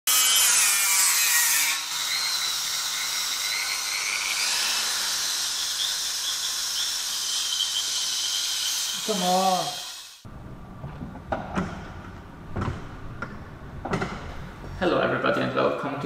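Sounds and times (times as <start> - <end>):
electric grinder whining: 0.1 - 10.2.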